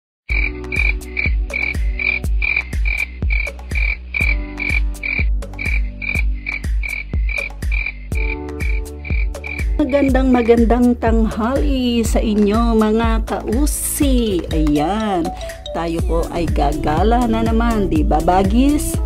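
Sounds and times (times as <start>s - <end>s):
high chirping sample: 0.3s - 10.9s
deep kick drum: 0.3s - 14.9s
electronic beat music: 0.3s - 19.0s.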